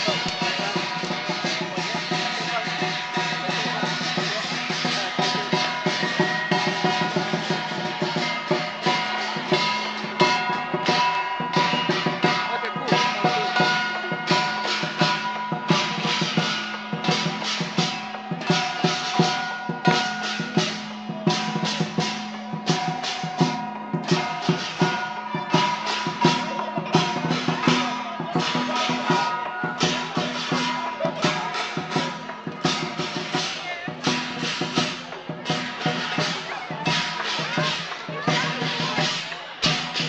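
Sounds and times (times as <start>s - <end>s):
cymbals clashing: 0.0s - 40.0s
large drum beating: 0.0s - 40.0s.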